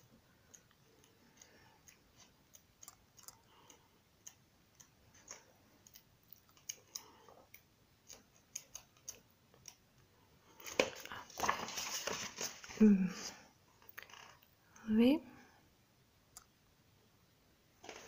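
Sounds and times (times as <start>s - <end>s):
book pages turning: 10.6s - 12.8s.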